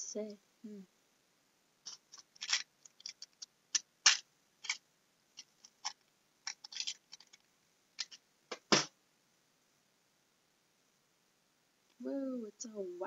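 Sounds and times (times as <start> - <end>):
candy wrapper crinkling: 1.9 - 4.8, 5.4 - 8.2.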